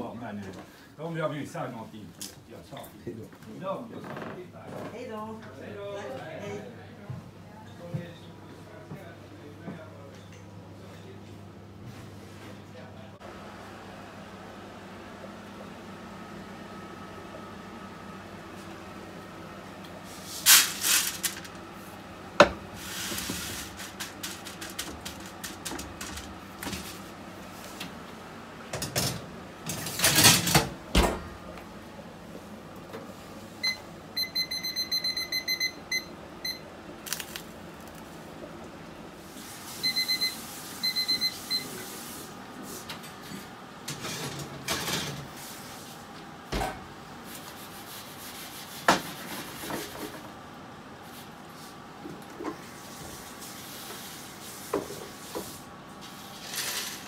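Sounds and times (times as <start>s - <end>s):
seeds rattling onto metal tray: 20.5s - 21.5s
oven timer beeping: 33.6s - 36.7s, 39.7s - 41.8s.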